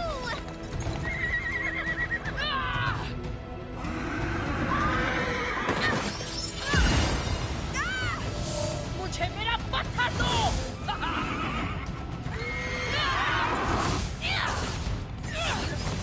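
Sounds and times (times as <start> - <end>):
background music: 0.0 - 16.0
horse whinnies: 1.0 - 2.4, 3.9 - 6.1, 11.0 - 14.0.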